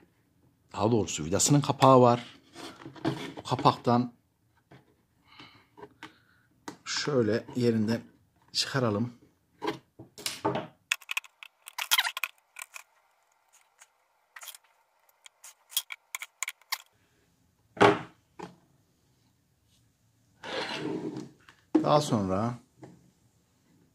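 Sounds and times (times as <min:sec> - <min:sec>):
metal pick clicking on plastic: 0:10.9 - 0:12.9, 0:13.5 - 0:16.9.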